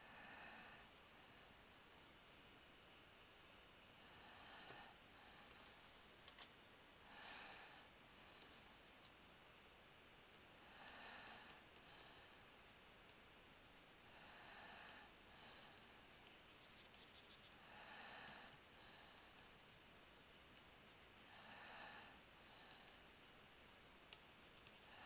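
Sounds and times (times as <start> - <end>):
soft breathing into microphone: 7.0 - 9.1, 10.0 - 12.8, 14.1 - 19.8, 21.1 - 23.8.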